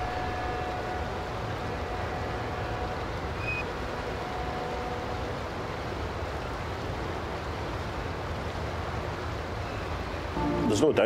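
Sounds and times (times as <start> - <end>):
low rumble and hiss: 0.0 - 11.0
short high tone: 10.4 - 11.0.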